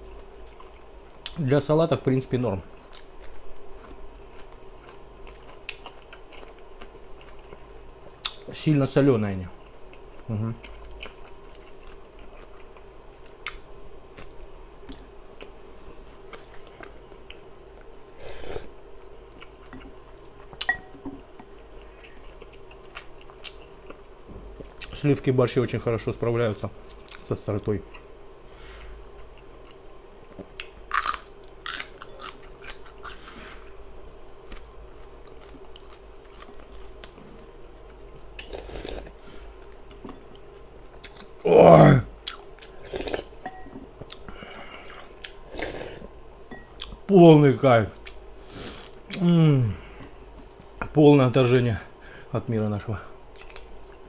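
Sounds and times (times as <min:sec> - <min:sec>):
faint steady hum: 0:00.0 - 0:54.0
soft mouth eating sounds: 0:02.7 - 0:08.5, 0:34.5 - 0:41.4, 0:42.0 - 0:46.1, 0:48.0 - 0:50.9, 0:53.3 - 0:54.0
close chewing with mouth clicks: 0:02.8 - 0:08.4, 0:09.9 - 0:15.5, 0:30.4 - 0:33.8, 0:42.2 - 0:43.3, 0:53.3 - 0:54.0.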